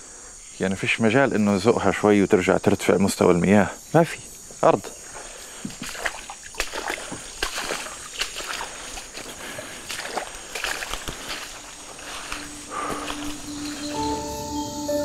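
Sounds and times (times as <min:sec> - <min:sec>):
insects droning: 0:00.0 - 0:15.0
footsteps splashing through water: 0:04.9 - 0:14.2.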